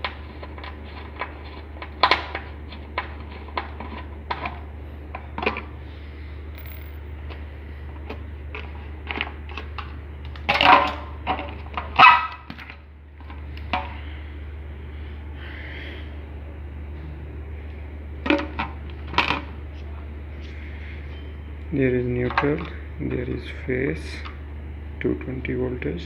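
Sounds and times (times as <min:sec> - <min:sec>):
steady low hum: 0:00.0 - 0:10.4, 0:12.8 - 0:26.0
dog barking: 0:12.0 - 0:12.4.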